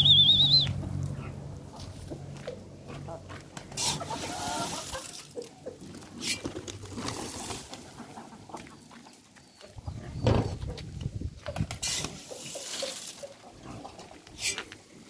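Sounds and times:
hens clucking: 0.0s - 15.0s
loud low thump: 10.2s - 10.6s.

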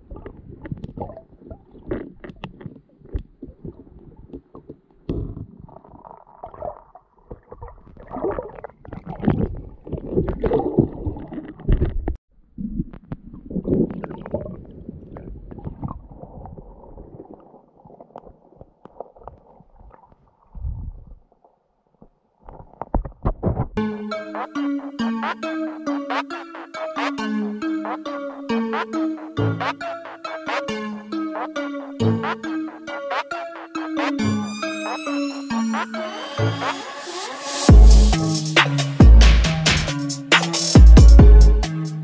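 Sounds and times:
underwater rumbling and sloshing: 0.0s - 23.8s.

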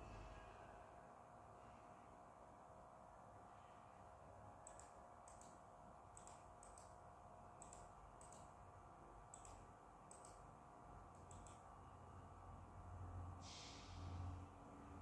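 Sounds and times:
faint electrical hum: 0.0s - 15.0s
computer mouse clicks: 4.6s - 7.0s, 7.6s - 8.6s, 9.3s - 10.5s, 11.1s - 11.7s.

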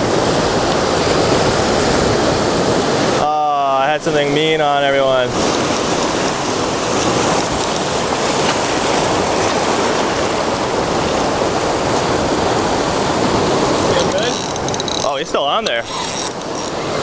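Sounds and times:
ocean surf over rocks: 0.0s - 17.0s.

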